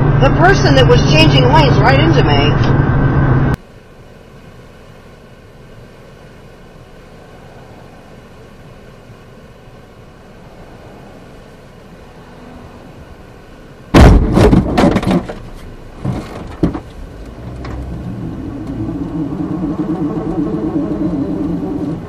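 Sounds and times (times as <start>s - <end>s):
car crash impact: 13.9s - 17.0s.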